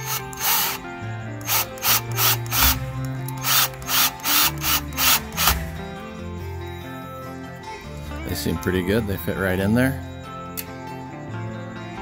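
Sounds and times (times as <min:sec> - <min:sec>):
cordless drill driving screws: 0:00.0 - 0:00.8, 0:01.4 - 0:05.6
background music: 0:00.0 - 0:12.0.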